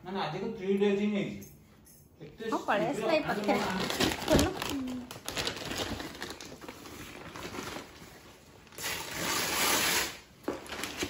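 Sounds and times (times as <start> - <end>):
plastic bag being handled: 3.2 - 9.8
plastic bag crinkling and tearing: 3.3 - 11.0.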